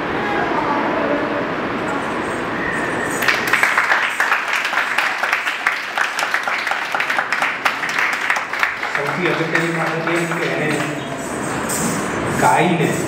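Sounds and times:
audience applauding: 3.2 - 11.7.

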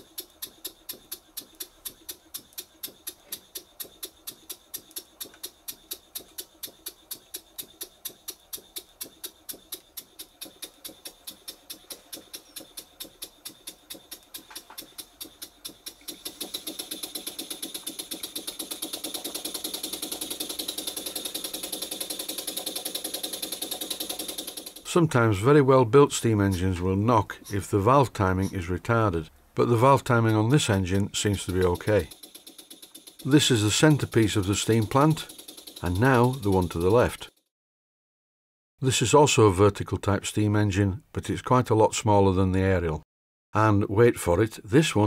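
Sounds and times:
model steam engine knocking: 0.0 - 25.0, 30.0 - 37.4.

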